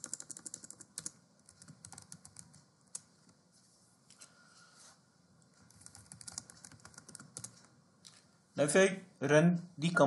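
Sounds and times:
typing on computer keyboard: 0.0 - 3.1, 5.6 - 7.7.

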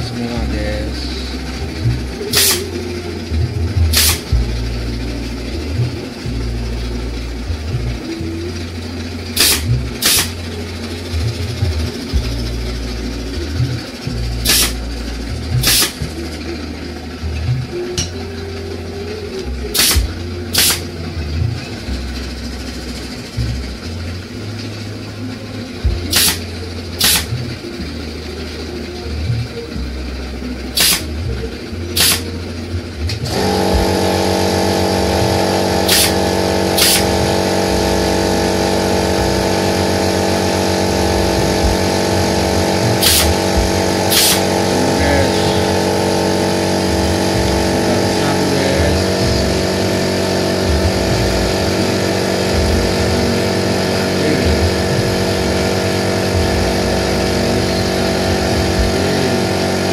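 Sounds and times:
steady machine hum: 0.0 - 59.9
pneumatic nailer firing: 2.3 - 2.8, 3.9 - 4.3, 9.4 - 10.5, 14.4 - 14.8, 15.6 - 16.0, 19.7 - 21.0, 26.0 - 27.4, 30.8 - 31.2, 31.9 - 32.4, 33.1 - 44.7.

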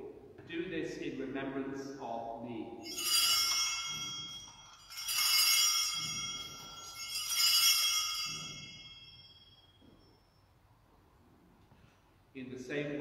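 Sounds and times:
altar bells ringing: 2.8 - 10.5.

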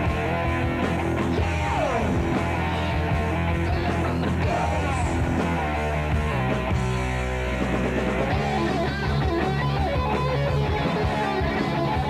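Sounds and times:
rock music with electric guitar: 0.0 - 12.0.

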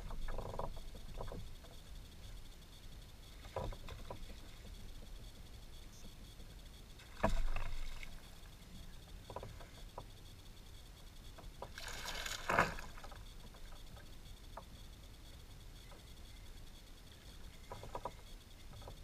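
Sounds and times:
fish splashing at water surface: 11.8 - 13.1.

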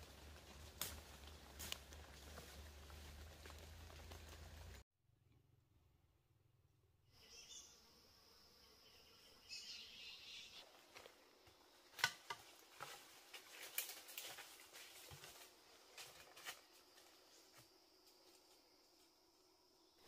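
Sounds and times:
twigs snapping and crackling: 0.1 - 4.8, 11.9 - 15.4
faint high insect drone: 7.2 - 20.0.

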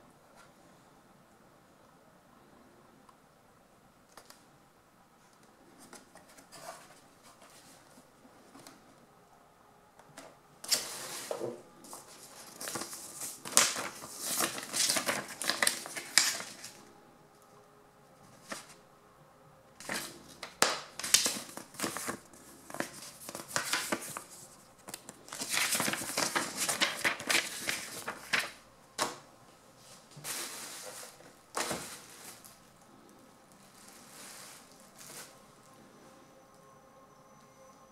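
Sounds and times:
paper and plastic rustling: 5.8 - 8.8, 10.2 - 16.9, 18.2 - 18.8, 19.8 - 29.2, 29.8 - 32.6, 33.6 - 35.4.

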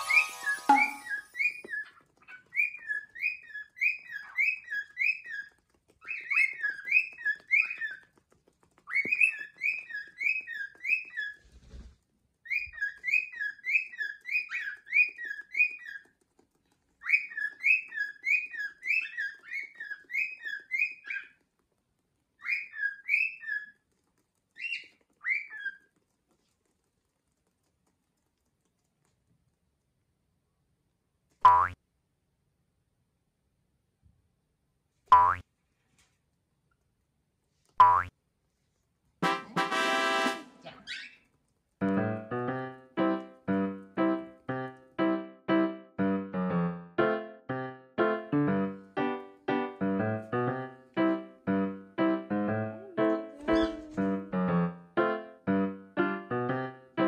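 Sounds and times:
cockatiel chirping: 0.0 - 11.5, 12.4 - 21.4, 22.4 - 26.0, 40.6 - 41.4, 53.3 - 54.0.

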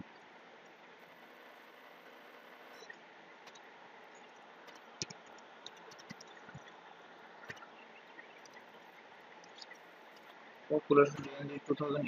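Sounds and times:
low steady hiss: 0.0 - 12.0
computer keys typing: 4.6 - 6.6.

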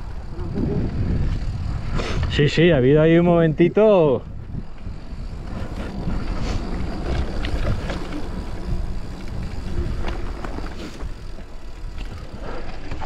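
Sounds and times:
wind rumbling on microphone: 0.0 - 13.0
bike clicking and knocking: 4.4 - 13.0
tyre noise: 4.6 - 13.0.

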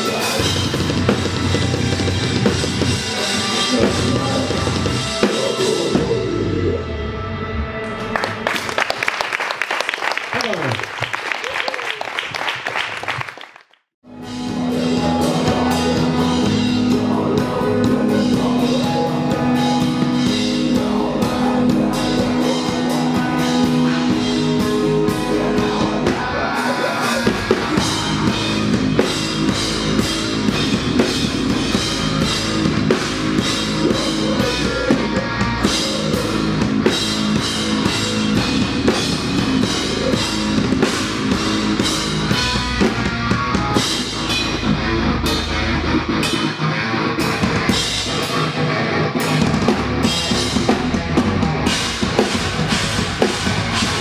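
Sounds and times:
live heavy rock band: 0.0 - 8.3, 14.1 - 54.0.

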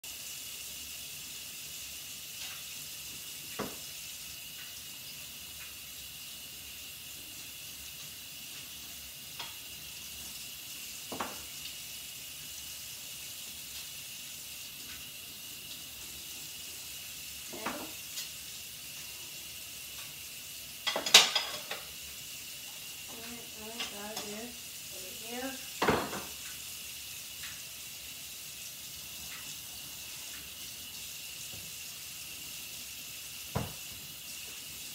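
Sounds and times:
water running in sink: 0.0 - 34.9
dishes clinking and clattering: 11.1 - 11.5, 20.8 - 22.0, 23.1 - 24.4, 25.8 - 26.4.

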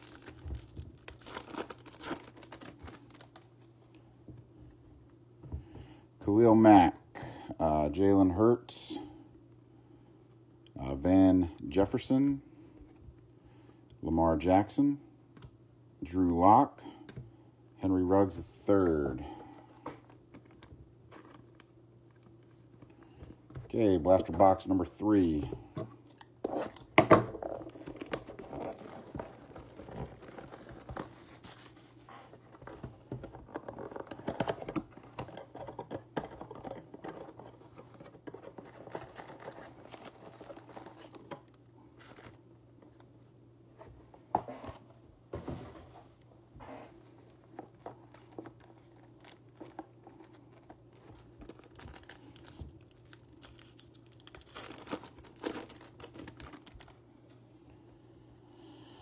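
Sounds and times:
foil pack tearing and crinkling: 0.0 - 3.6, 51.2 - 57.0.

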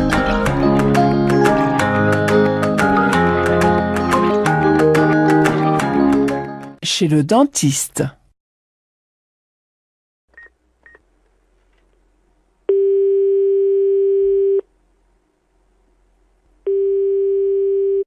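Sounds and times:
telephone ringing tone: 12.7 - 14.6, 16.6 - 18.0.

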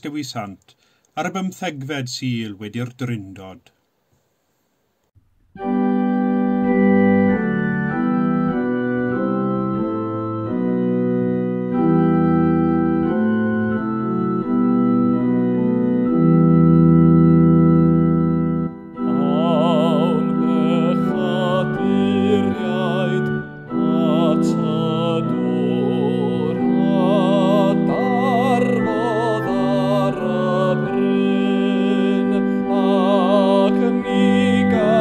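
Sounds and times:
church organ playing hymn chords: 5.6 - 35.0
people singing a hymn: 19.1 - 35.0.

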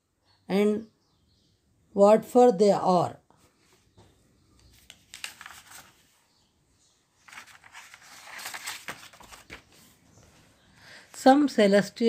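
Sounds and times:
faint rustling and crinkling: 3.3 - 6.5, 7.2 - 11.3.

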